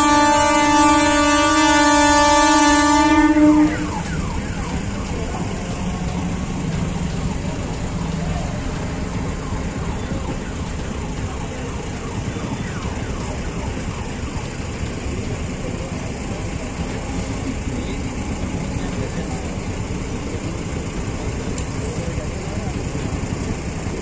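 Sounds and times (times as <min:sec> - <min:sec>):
passenger train rumbling past: 0:00.0 - 0:24.0
siren-like rising tone: 0:02.6 - 0:16.5.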